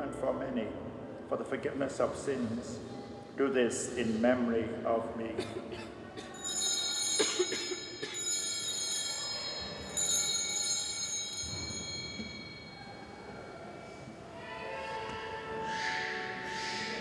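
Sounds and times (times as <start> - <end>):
altar bells ringing: 6.2 - 15.1.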